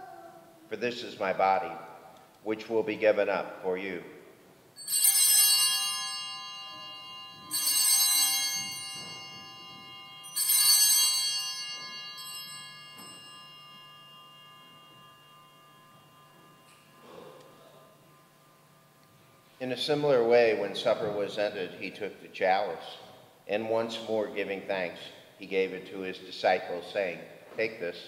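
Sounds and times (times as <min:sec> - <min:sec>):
altar bells ringing: 0:04.7 - 0:24.4.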